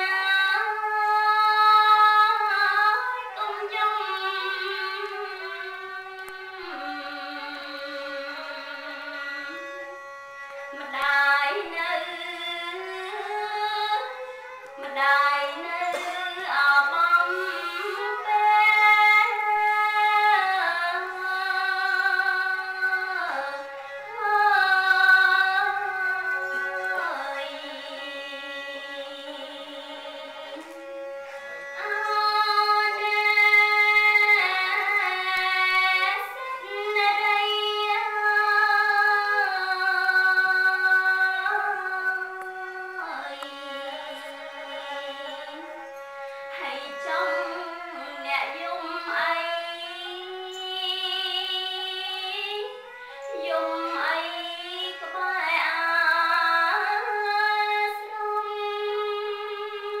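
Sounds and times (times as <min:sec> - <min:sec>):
woman chanting: 0:00.0 - 1:00.0.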